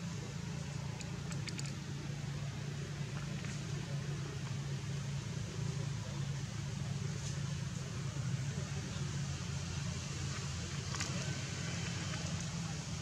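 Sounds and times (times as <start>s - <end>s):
low mechanical hum: 0.0s - 13.0s
faint clicks: 0.9s - 1.8s.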